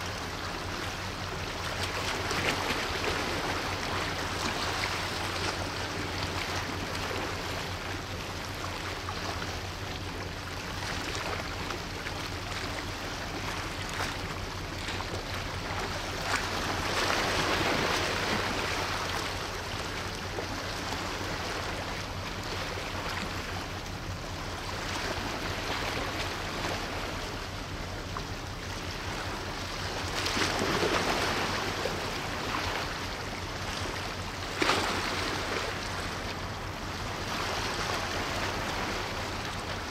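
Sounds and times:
ship engine hum: 0.0s - 39.9s
water rushing: 0.0s - 39.9s.

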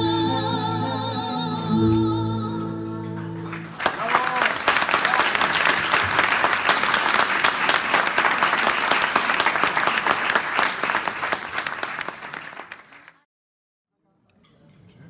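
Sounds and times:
audience applauding: 3.2s - 13.2s.

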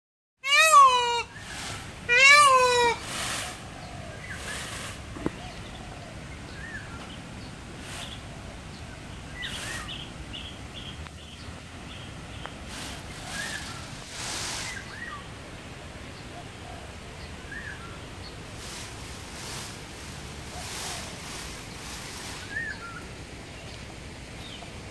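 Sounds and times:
peacock honking call: 0.4s - 5.0s, 18.6s - 23.0s
small birds chirping: 0.5s - 15.4s, 16.0s - 24.9s
rustling bursts: 0.6s - 5.2s, 12.6s - 15.0s, 18.4s - 23.3s.

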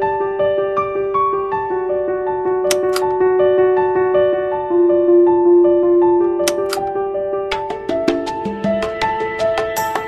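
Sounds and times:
soft keyboard melody: 0.0s - 10.0s.

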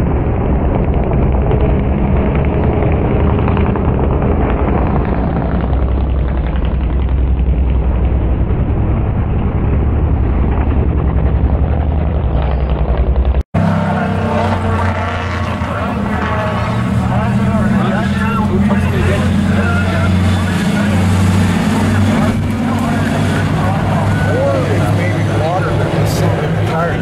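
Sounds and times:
race truck engines rumbling: 0.0s - 27.0s.

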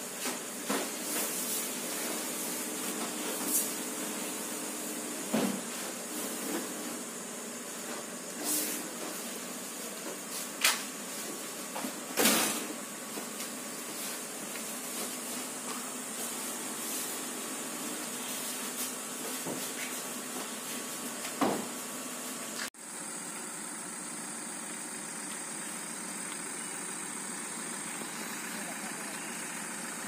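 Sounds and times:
pump sprayer hissing bursts: 0.0s - 11.1s, 22.8s - 30.0s
high background hiss: 0.1s - 30.0s.

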